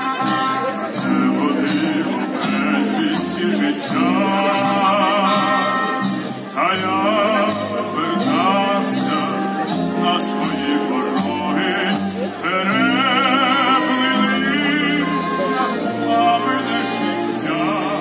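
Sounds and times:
man singing operatically: 0.0 - 18.0
wind band sustained chords: 0.0 - 18.0.

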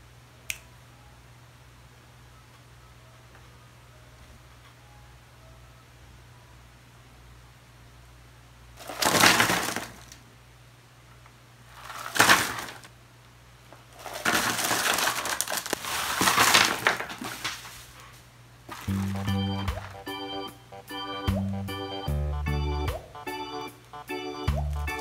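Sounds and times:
candies clattering: 8.8 - 10.2, 11.7 - 12.9, 13.9 - 17.8, 18.7 - 20.0
candy wrappers crinkling: 8.8 - 10.2, 11.7 - 12.9, 13.9 - 17.8, 18.7 - 20.0.

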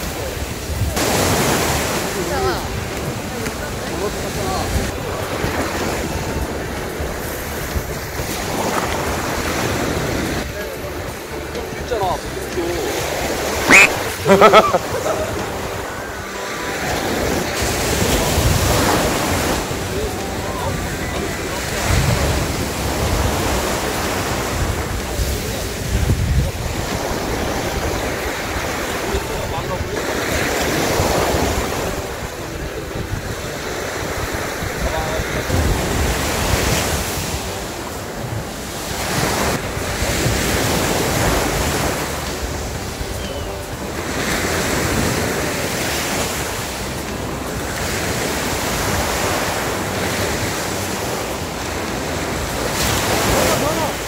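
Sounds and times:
surf breaking on shore: 0.0 - 54.0
wind buffeting microphone: 17.0 - 54.0.

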